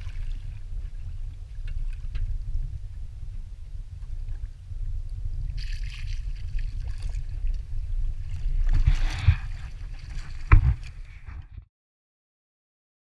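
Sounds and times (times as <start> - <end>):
water splashing: 0.0 - 1.2, 5.5 - 11.4
steady low rumble: 0.0 - 11.6.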